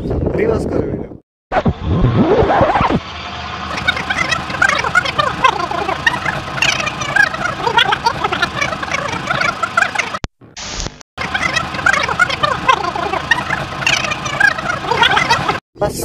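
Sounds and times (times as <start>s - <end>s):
garbled reversed chirping chatter: 3.7s - 10.2s, 11.2s - 15.6s.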